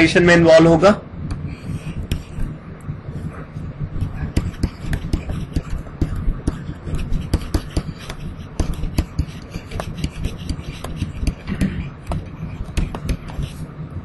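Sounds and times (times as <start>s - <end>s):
stylus tapping on tablet: 2.0s - 2.6s, 4.0s - 13.6s.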